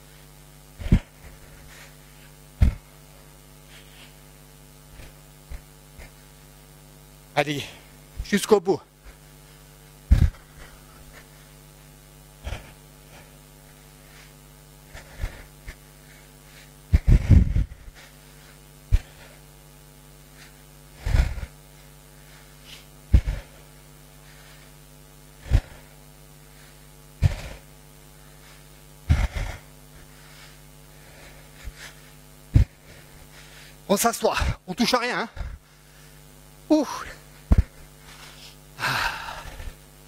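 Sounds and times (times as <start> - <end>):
man breathing hard: 0.0 - 4.3, 9.1 - 11.6, 12.3 - 19.6, 20.3 - 34.6, 37.0 - 39.8
steady electrical hum: 0.0 - 40.0.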